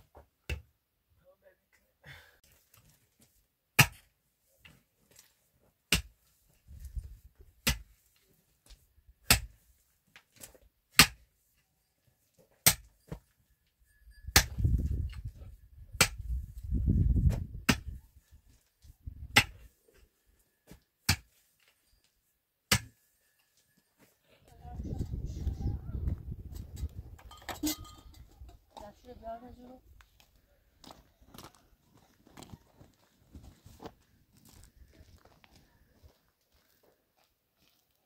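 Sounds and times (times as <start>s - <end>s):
pickaxe striking stony earth: 3.8s - 4.1s, 5.9s - 6.2s, 7.6s - 8.0s, 9.2s - 9.6s, 10.4s - 11.3s, 12.6s - 13.2s, 14.3s - 15.3s, 15.9s - 16.4s, 17.3s - 18.0s, 19.2s - 19.7s, 21.0s - 21.4s, 22.7s - 23.0s.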